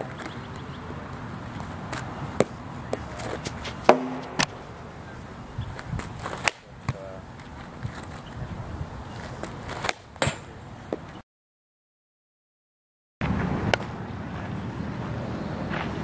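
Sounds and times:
bat hitting ball: 0:02.4 - 0:04.6.

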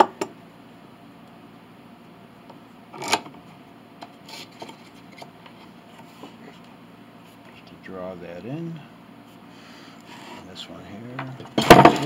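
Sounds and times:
low room noise: 0:00.0 - 0:12.0
wood rubbing or knocking: 0:11.6 - 0:12.0.

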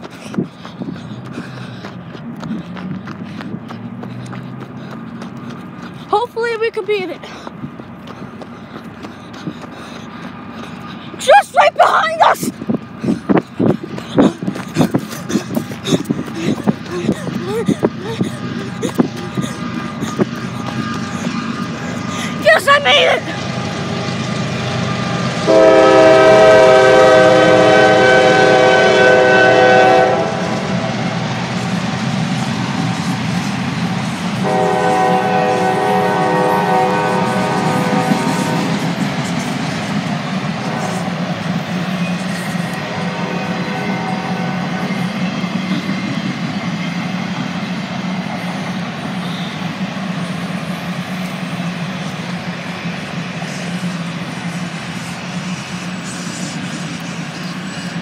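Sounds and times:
diesel locomotive rumbling: 0:00.0 - 0:58.0
freight train wheels on rails: 0:00.0 - 0:58.0
train air horn blast: 0:23.6 - 0:31.0, 0:34.4 - 0:38.9, 0:40.6 - 0:41.2, 0:42.7 - 0:45.0.

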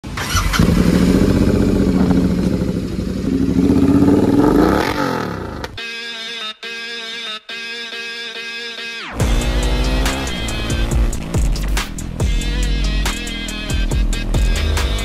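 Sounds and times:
motorcycle engine revving: 0:00.0 - 0:05.8, 0:09.2 - 0:15.0
music: 0:05.8 - 0:15.0.

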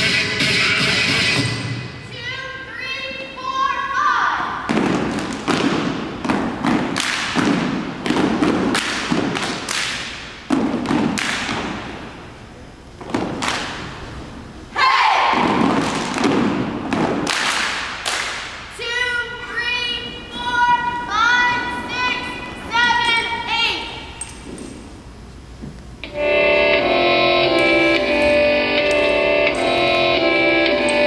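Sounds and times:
heavy echoing thumps: 0:04.6 - 0:18.8.

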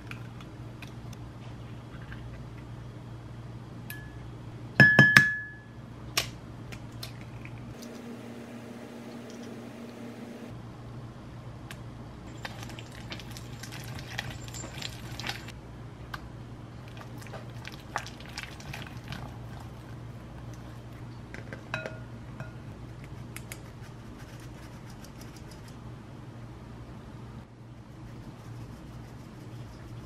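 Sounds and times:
low steady hum: 0:00.0 - 0:30.0
glass bowl ringing: 0:04.8 - 0:05.8.

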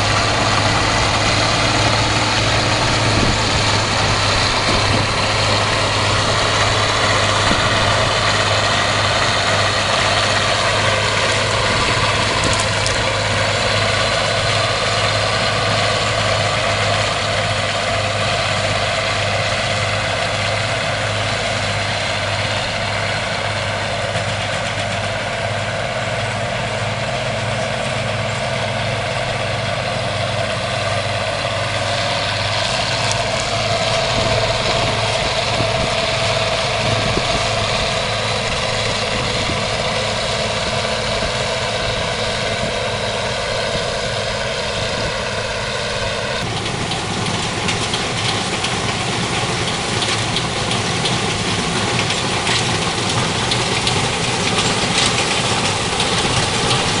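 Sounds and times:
diesel engine drone: 0:00.0 - 0:57.0
rattle of working machinery: 0:00.0 - 0:57.0.

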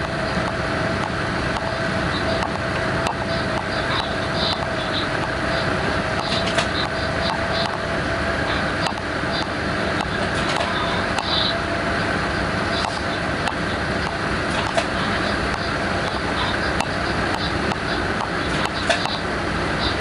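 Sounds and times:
train wheels rumbling on rail: 0:00.0 - 0:20.0
sharp clicks: 0:08.8 - 0:11.3.

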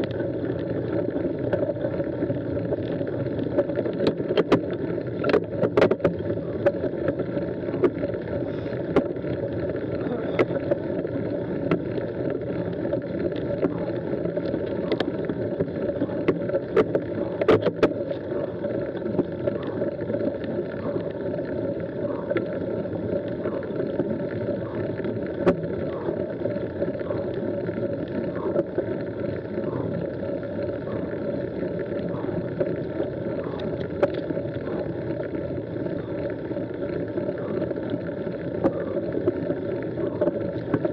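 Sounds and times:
stones and bike rattling: 0:00.0 - 0:31.4
bike tyres rolling on gravel: 0:00.0 - 0:40.9.

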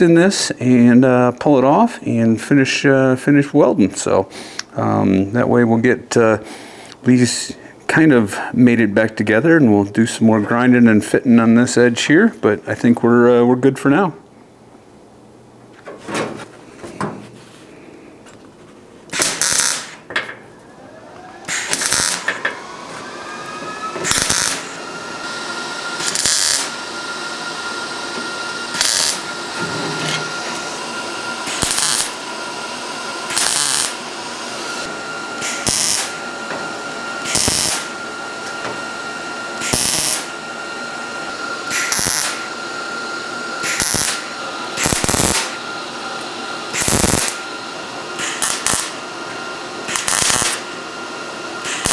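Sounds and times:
steady high whine: 0:00.0 - 0:51.9
welder crackling bursts: 0:19.1 - 0:20.1, 0:21.4 - 0:26.9, 0:27.8 - 0:32.2, 0:33.2 - 0:36.2, 0:37.2 - 0:37.9, 0:39.6 - 0:40.3, 0:41.6 - 0:42.5, 0:43.6 - 0:45.6, 0:46.7 - 0:47.4, 0:48.2 - 0:49.0, 0:49.8 - 0:50.7, 0:51.6 - 0:51.9.

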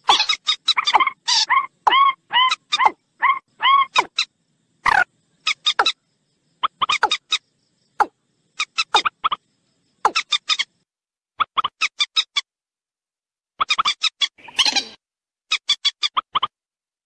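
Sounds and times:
water bird calls: 0:00.0 - 0:06.0.

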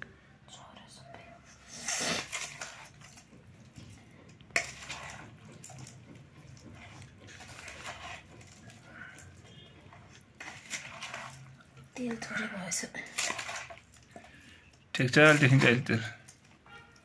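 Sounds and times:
wet squishy mixing: 0:01.3 - 0:17.0
spoon scraping and clinking bowl: 0:01.7 - 0:12.2.

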